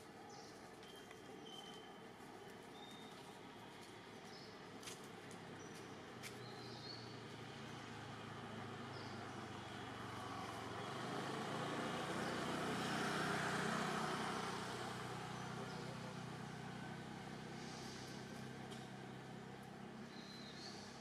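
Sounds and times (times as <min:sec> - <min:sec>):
motor vehicle passing by: 0:05.2 - 0:21.0.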